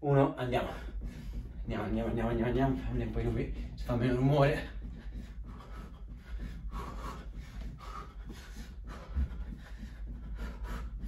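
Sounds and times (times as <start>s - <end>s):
steady low hum: 0.0s - 11.0s
man breathing hard: 0.6s - 1.7s, 4.6s - 11.0s.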